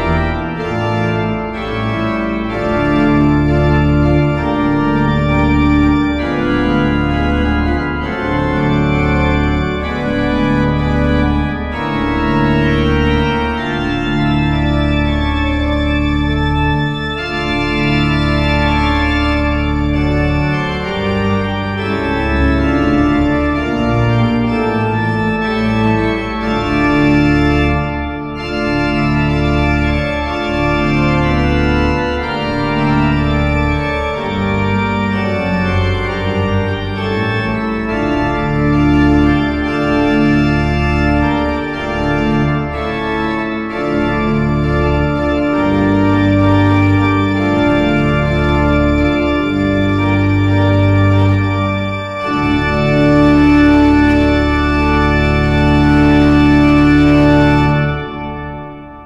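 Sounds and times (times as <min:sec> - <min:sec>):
deep organ pedal bass: 0:00.0 - 0:59.0
pipe organ chords: 0:00.0 - 0:59.0.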